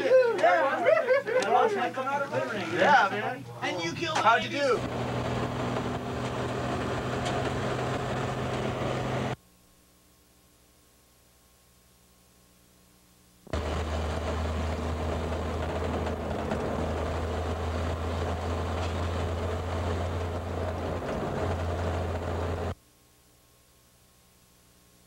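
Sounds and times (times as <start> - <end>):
road and wind noise: 4.8 - 9.4, 13.6 - 22.8
vehicle engine drone: 4.8 - 9.4, 13.5 - 22.8.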